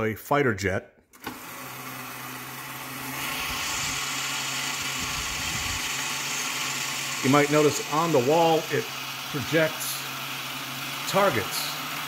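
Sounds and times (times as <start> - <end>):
toy electric motor hum: 3.1 - 12.0.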